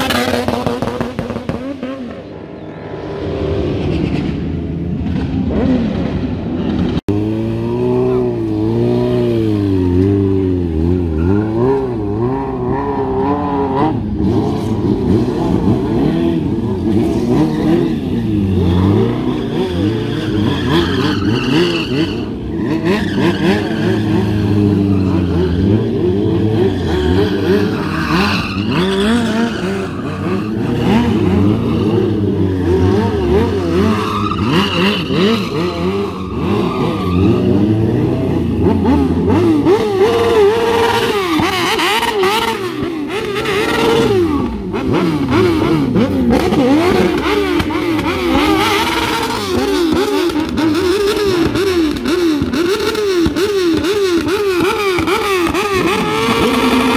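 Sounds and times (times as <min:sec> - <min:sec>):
motorcycle engines revving: 0:00.0 - 0:56.9
tyre squeal: 0:16.9 - 0:38.0.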